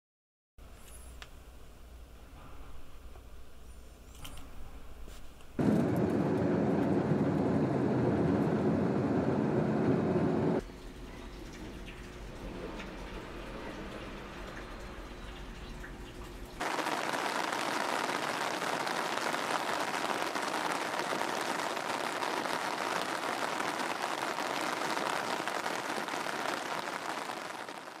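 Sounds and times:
rain on wet asphalt: 16.6 - 28.0.

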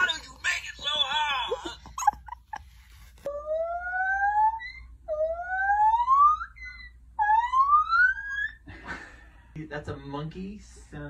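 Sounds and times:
siren-like whooping calls: 3.3 - 8.6.

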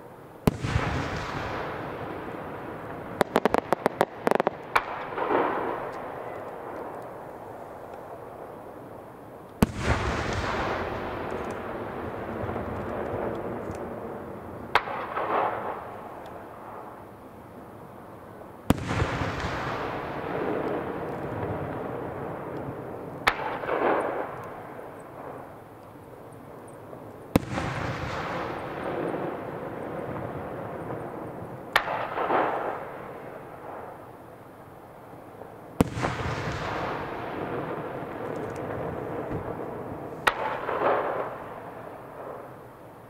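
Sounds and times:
firework booms: 0.4 - 6.7, 9.6 - 14.0, 18.7 - 24.4, 35.8 - 42.4
rolling echo and rumble: 35.9 - 41.6.

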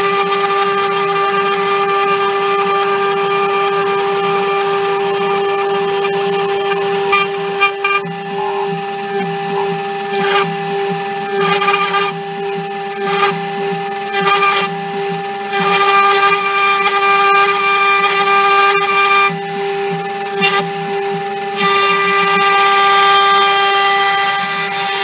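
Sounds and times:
router spindle whine: 0.0 - 25.0.

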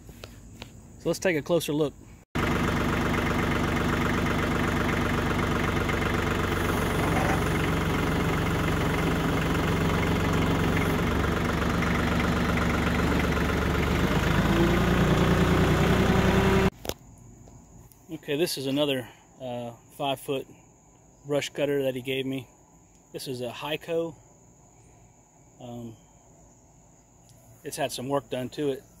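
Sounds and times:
tractor diesel engine running: 2.4 - 16.8.

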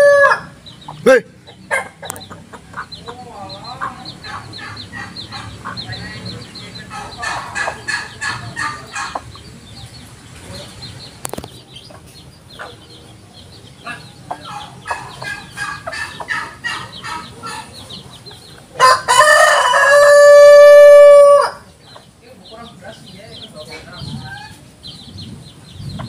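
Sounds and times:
rooster crowing: 0.0 - 0.6, 18.8 - 21.6
chickens clucking: 0.0 - 26.0.

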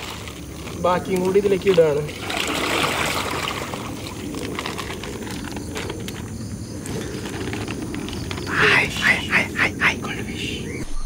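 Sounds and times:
water pouring into fish tank: 0.0 - 5.4
steady background hiss: 0.0 - 11.0.

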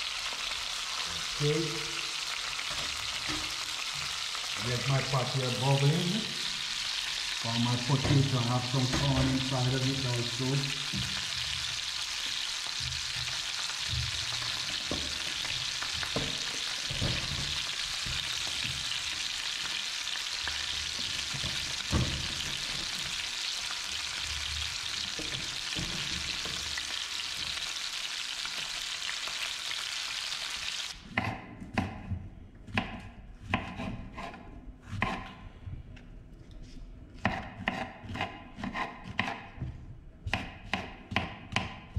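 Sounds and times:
fish frying in hot oil: 0.0 - 31.0
knife chopping on wooden board: 32.7 - 35.4, 37.2 - 41.9.

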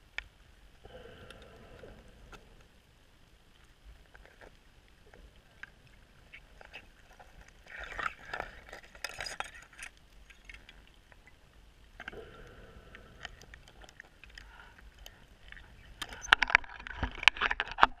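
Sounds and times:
scuba regulator breathing: 0.8 - 2.7, 12.1 - 15.3.

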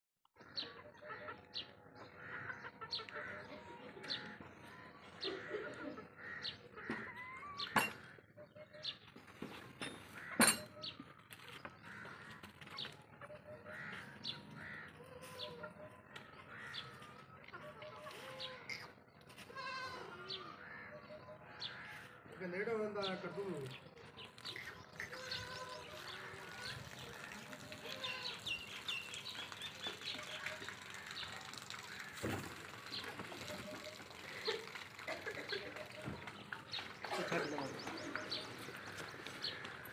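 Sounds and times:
birds chirping: 0.4 - 39.9
goat bleating: 19.4 - 20.6.

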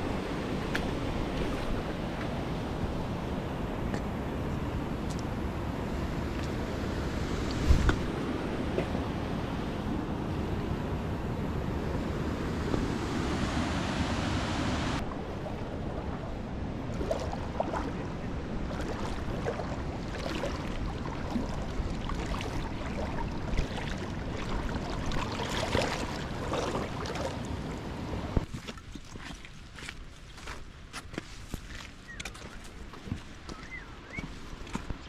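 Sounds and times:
running water: 13.3 - 30.6.

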